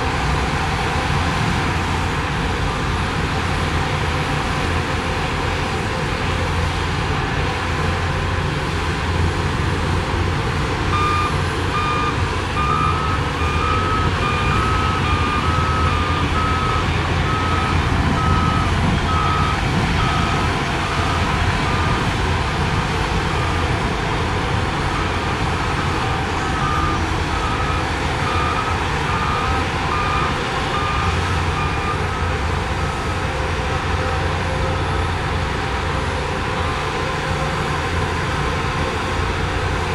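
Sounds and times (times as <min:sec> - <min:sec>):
diesel engine running: 0:00.0 - 0:39.9
reversing alarm beeping: 0:10.9 - 0:22.1, 0:24.9 - 0:35.4.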